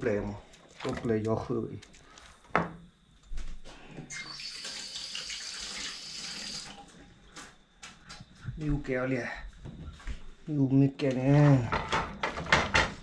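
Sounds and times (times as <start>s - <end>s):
tap water running: 4.0s - 7.1s.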